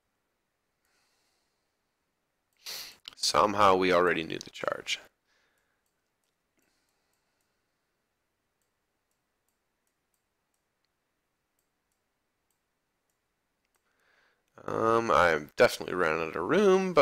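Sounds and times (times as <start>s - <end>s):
faint clicks: 5.5s - 7.6s, 8.6s - 14.6s.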